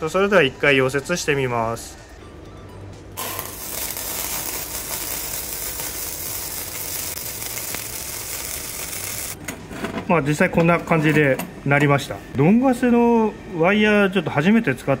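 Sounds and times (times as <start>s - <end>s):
welding arc hissing: 3.2s - 9.4s.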